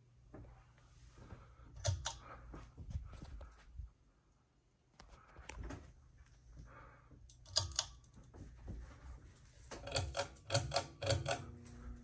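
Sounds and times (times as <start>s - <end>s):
pull-chain switch clicks: 7.3s - 8.0s
fan motor humming: 9.6s - 12.0s.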